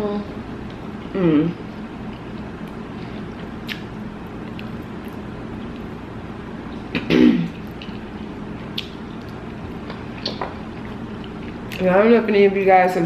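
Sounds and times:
steady low hum: 0:00.0 - 0:13.0
mouth clicks of chewing: 0:03.6 - 0:03.9
woman coughing: 0:07.0 - 0:07.6.

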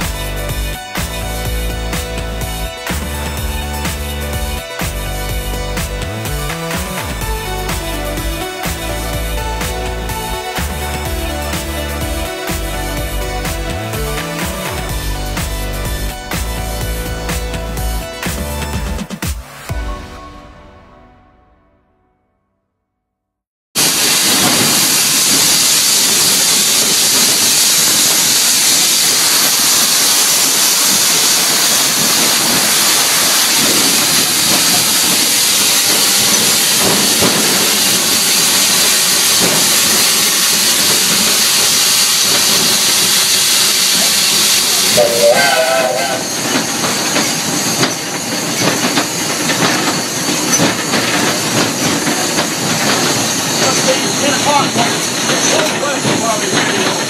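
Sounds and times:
faint regular beat: 0:00.0 - 0:19.6
steam hissing: 0:00.0 - 0:19.7, 0:23.8 - 0:57.0
brief wavering tone: 0:44.9 - 0:47.3.

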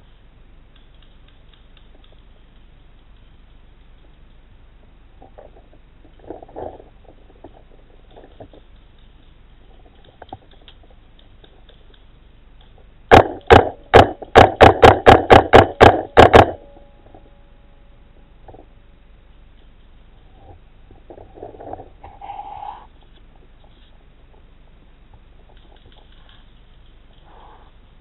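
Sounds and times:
paintball marker shots: 0:13.1 - 0:16.6.

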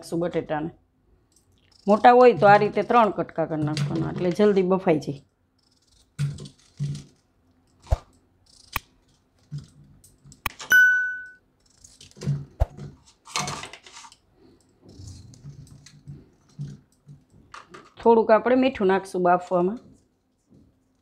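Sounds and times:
ringing bell chime: 0:10.7 - 0:11.4.

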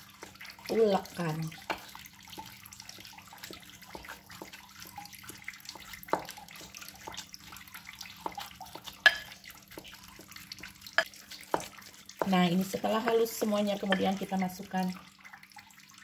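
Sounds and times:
wet squishes of tofu mashing: 0:00.0 - 0:16.0
masher tapping glass bowl: 0:09.0 - 0:09.3.

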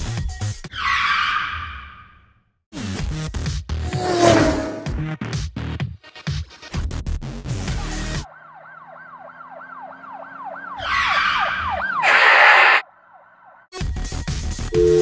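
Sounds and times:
music: 0:00.0 - 0:00.7, 0:02.8 - 0:03.8, 0:04.9 - 0:08.2, 0:13.7 - 0:15.0
emergency siren sweeps: 0:08.2 - 0:13.7.

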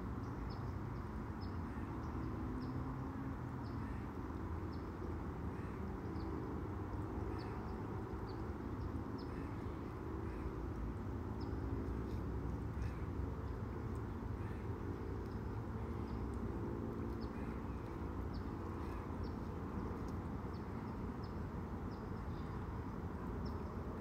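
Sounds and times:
low outdoor rumble: 0:03.3 - 0:24.0.

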